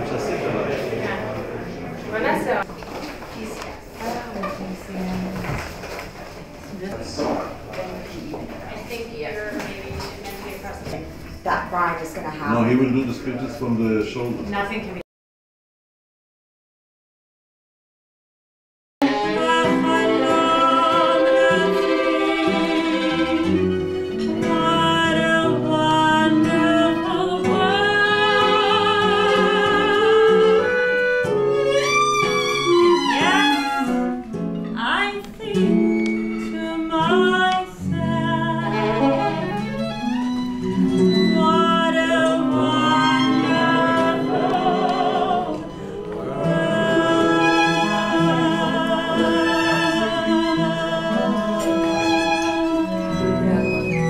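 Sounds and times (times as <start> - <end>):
woman singing with vibrato: 19.0 - 31.2, 34.8 - 39.8, 40.7 - 53.8
violin: 19.0 - 54.0.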